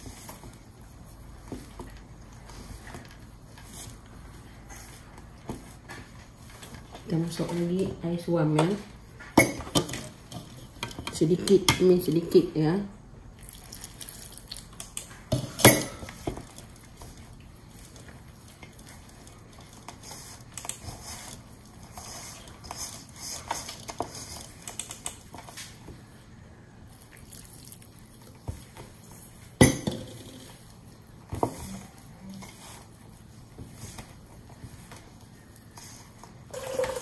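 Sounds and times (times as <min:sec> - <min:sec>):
hand squishing dough in bowl: 0:16.0 - 0:29.6, 0:30.3 - 0:36.5.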